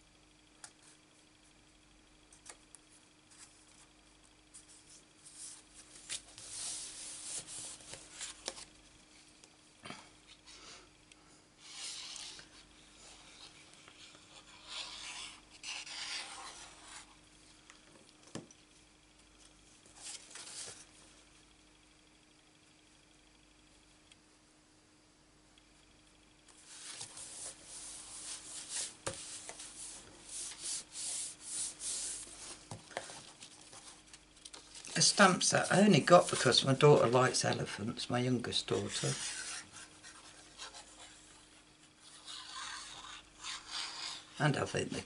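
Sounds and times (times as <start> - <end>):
paper rubbing and sliding: 4.5 - 8.6, 11.6 - 17.2, 26.6 - 34.0, 34.7 - 37.1, 38.7 - 41.3, 42.0 - 44.4.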